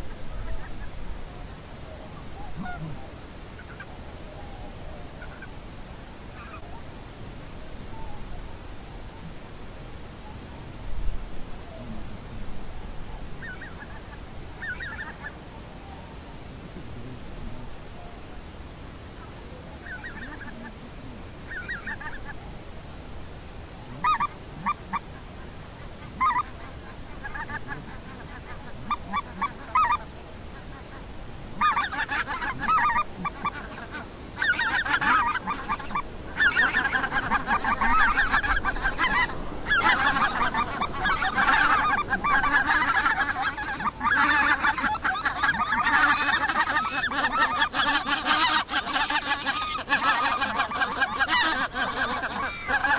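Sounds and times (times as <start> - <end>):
geese honking: 0.0 - 5.6, 6.3 - 6.8, 13.1 - 16.1, 19.2 - 22.6, 23.9 - 52.9.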